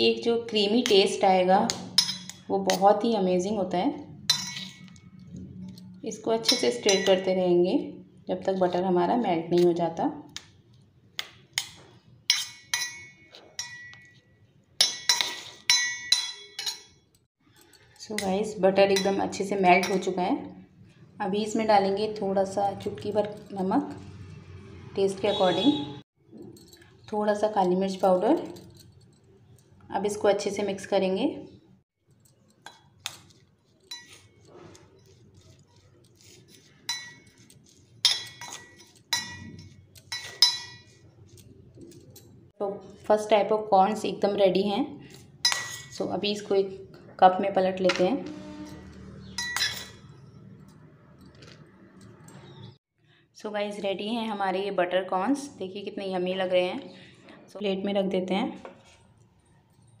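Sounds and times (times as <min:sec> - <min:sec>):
spoon clinking against metal bowl: 0:00.5 - 0:03.1, 0:04.1 - 0:07.5, 0:11.2 - 0:20.2, 0:32.2 - 0:42.4, 0:45.1 - 0:46.2, 0:47.9 - 0:52.7.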